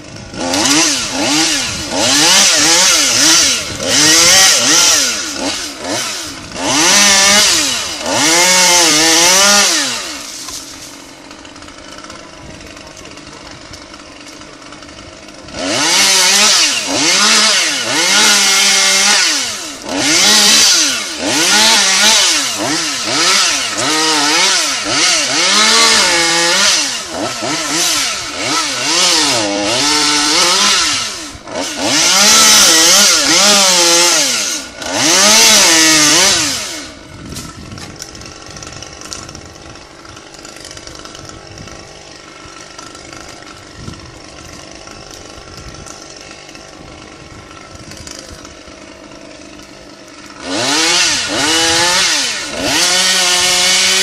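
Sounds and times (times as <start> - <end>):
chainsaw revving: 0.0 - 54.0.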